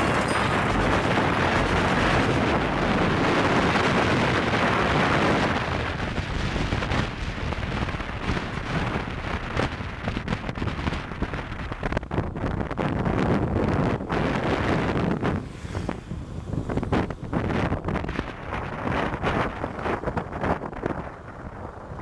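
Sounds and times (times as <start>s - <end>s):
wind and road rush: 0.0s - 22.0s
wind buffeting microphone: 0.0s - 22.0s.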